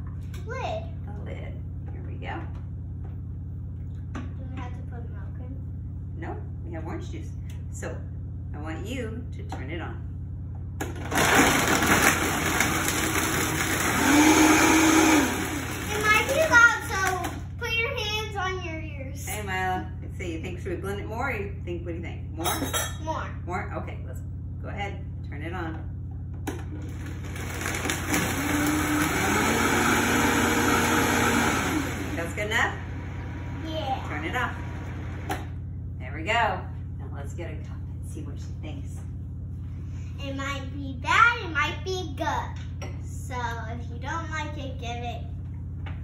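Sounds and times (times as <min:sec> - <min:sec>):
blender blending ice: 0:10.8 - 0:17.4, 0:26.8 - 0:35.4.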